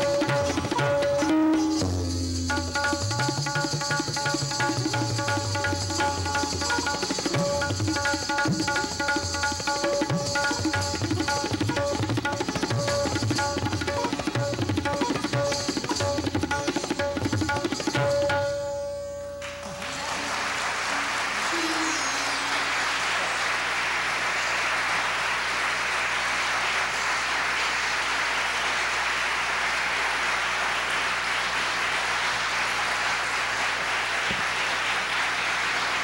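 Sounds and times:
tabla and sitar music: 0:00.0 - 0:29.2
audience applauding: 0:19.4 - 0:36.0.

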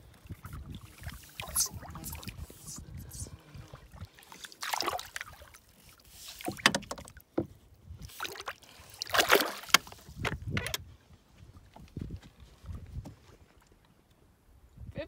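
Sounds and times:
water splashing beside boat: 0:00.0 - 0:10.4.

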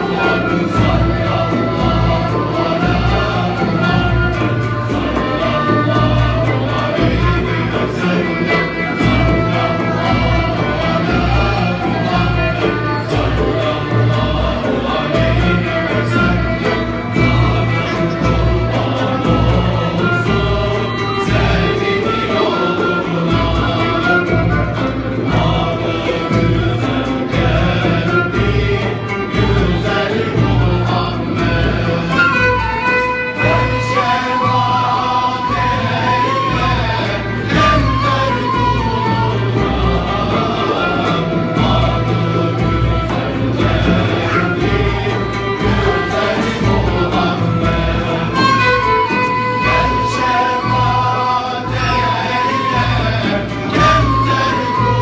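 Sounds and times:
frame drum beat: 0:00.0 - 0:55.0
male choir singing: 0:00.0 - 0:55.0
oud: 0:00.0 - 0:55.0
traditional string and flute ensemble: 0:00.0 - 0:55.0
violin: 0:00.0 - 0:55.0
end-blown flute: 0:31.4 - 0:40.9, 0:47.6 - 0:55.0.

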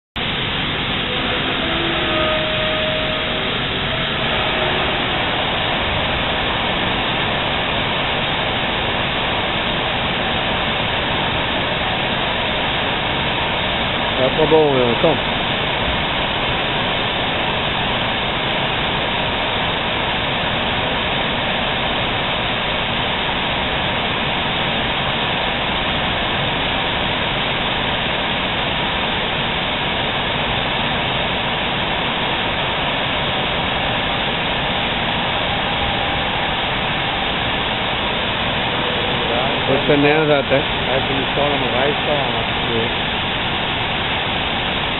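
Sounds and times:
cutting torches hissing roar: 0:00.2 - 0:17.8, 0:31.9 - 0:44.9.

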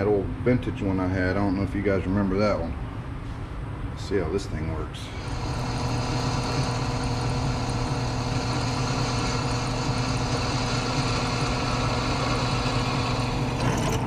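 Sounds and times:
drill press drilling metal: 0:05.2 - 0:14.0.

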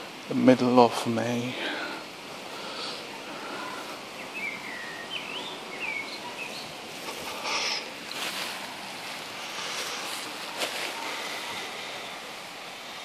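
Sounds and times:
breeze hiss: 0:00.0 - 0:13.0
songbird whistling: 0:04.2 - 0:06.7.

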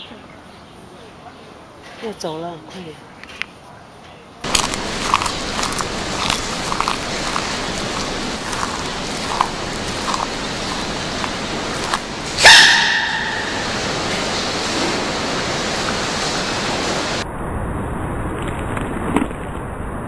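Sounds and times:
steady hiss: 0:04.7 - 0:17.2.

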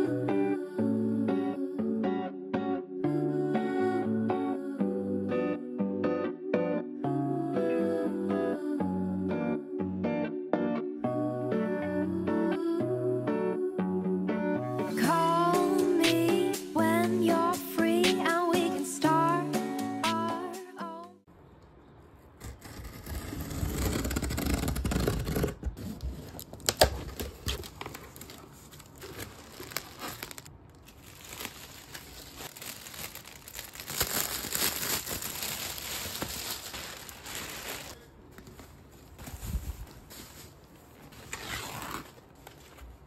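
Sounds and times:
plastic packaging crinkling: 0:23.8 - 0:43.0.

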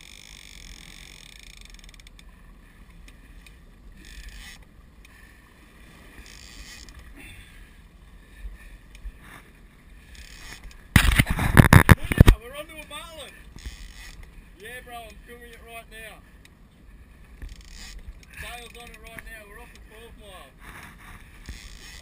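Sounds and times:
boat engine and water rumble: 0:00.0 - 0:22.0.

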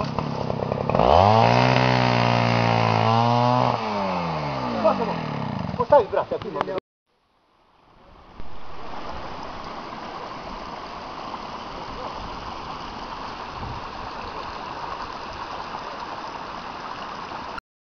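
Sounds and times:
stream flowing over rocks: 0:07.4 - 0:17.6.

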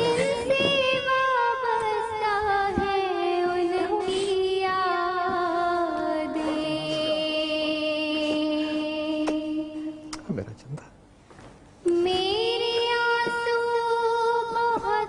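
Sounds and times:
person singing long note: 0:06.3 - 0:09.8.

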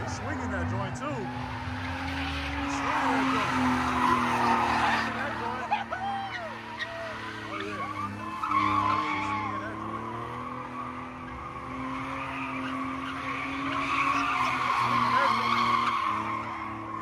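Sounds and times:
car engine at high revs: 0:00.0 - 0:17.0
tires squealing: 0:00.0 - 0:17.0.

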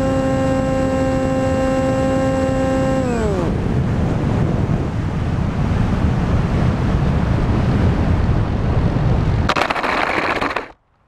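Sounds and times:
wind rushing over camera: 0:00.0 - 0:10.8
plane skidding on asphalt: 0:09.4 - 0:10.8.

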